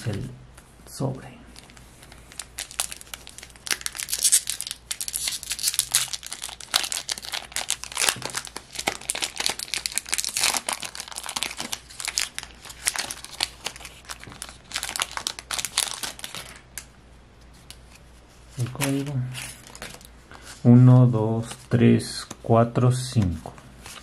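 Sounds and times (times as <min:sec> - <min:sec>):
foil wrapper crinkling: 0:01.6 - 0:16.9.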